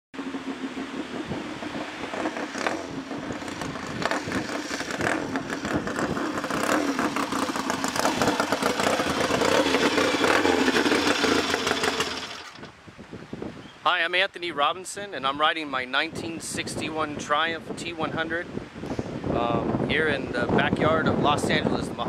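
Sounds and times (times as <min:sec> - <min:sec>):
motorcycle engine approaching: 0:00.2 - 0:12.8.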